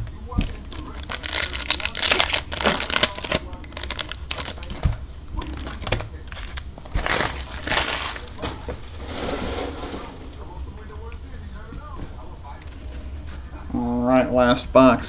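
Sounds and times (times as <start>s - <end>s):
foil wrappers crinkling: 0.0s - 10.1s.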